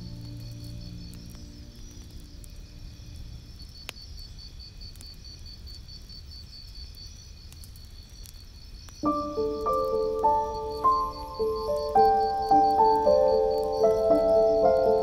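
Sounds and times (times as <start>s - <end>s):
soft music: 0.0s - 3.6s, 9.0s - 15.0s
faint low rumble: 0.0s - 4.4s
crickets chirping: 0.0s - 15.0s.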